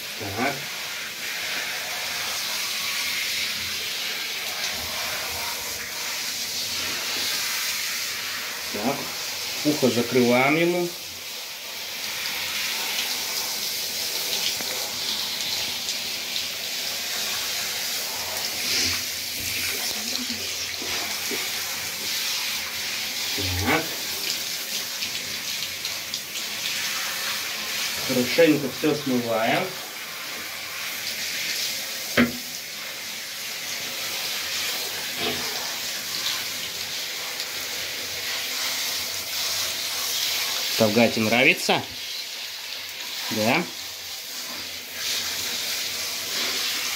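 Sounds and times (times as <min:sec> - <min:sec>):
shower head spraying water: 0:00.0 - 0:46.9
sharp knock: 0:32.2 - 0:32.4.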